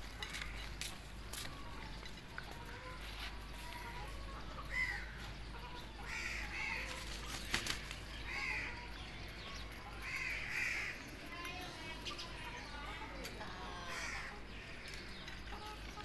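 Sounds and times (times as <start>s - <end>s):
harsh cawing bird calls: 3.9s - 11.4s, 12.0s - 15.6s.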